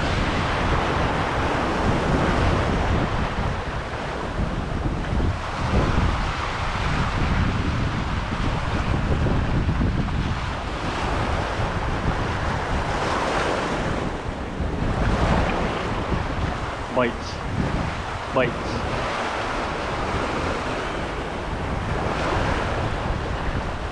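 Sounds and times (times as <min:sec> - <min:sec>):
waves breaking on rocks: 0:00.0 - 0:23.9
wind on microphone: 0:00.0 - 0:23.9.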